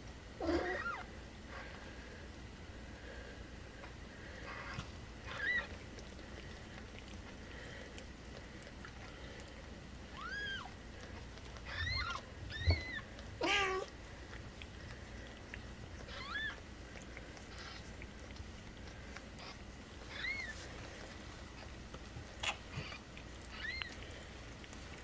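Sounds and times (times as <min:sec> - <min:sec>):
kittens mewing: 0:00.4 - 0:01.1, 0:04.4 - 0:05.8, 0:10.1 - 0:10.8, 0:11.6 - 0:14.0, 0:15.2 - 0:20.5, 0:22.4 - 0:24.0.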